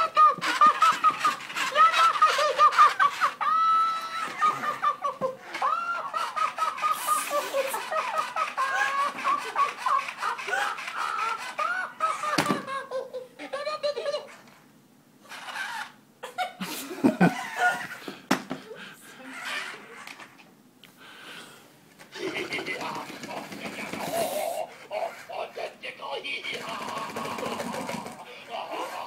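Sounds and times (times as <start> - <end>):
electronic toys laughing: 0.0 - 14.6, 15.2 - 18.2, 19.2 - 20.2, 22.1 - 29.0
toy thud on wooden floor: 12.4 - 12.7.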